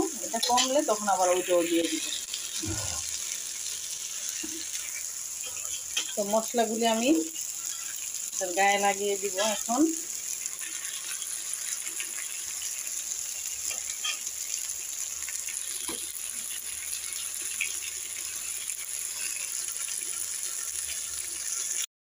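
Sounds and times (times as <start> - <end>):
eggplant sizzling in a pan: 0.0 - 21.9.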